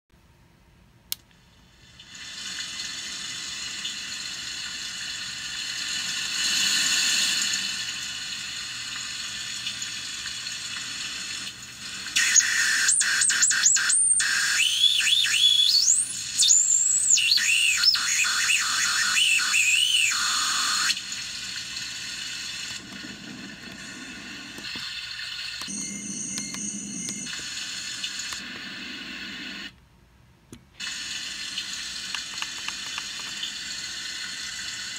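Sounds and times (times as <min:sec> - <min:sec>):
noisy electronic hiss: 0:00.2 - 0:34.9
squealing electronic tones: 0:12.2 - 0:21.0.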